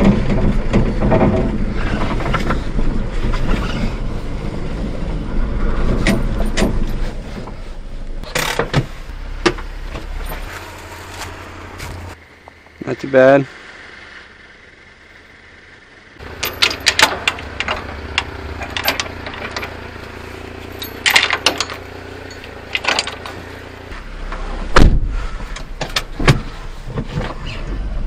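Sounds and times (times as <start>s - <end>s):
truck engine idling: 0.0s - 28.0s
truck door shutting: 8.2s - 10.6s, 24.7s - 27.6s
metal chains clanking and rattling: 10.0s - 10.6s, 16.2s - 23.6s.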